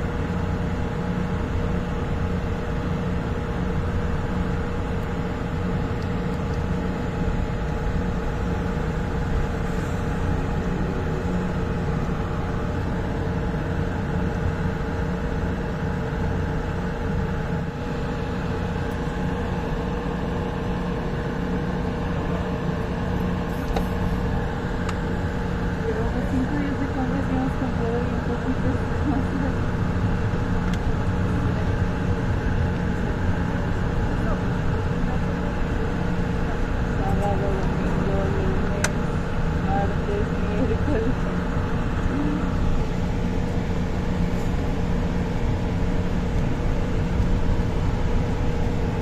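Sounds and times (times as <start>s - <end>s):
light rail car humming: 0.0s - 49.0s
low rumble: 7.3s - 15.6s.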